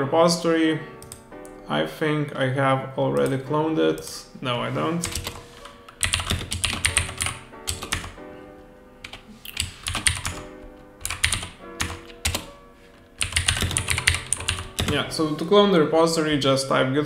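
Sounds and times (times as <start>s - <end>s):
keyboard typing: 1.0s - 1.2s, 5.0s - 8.2s, 9.0s - 12.6s, 13.2s - 15.1s.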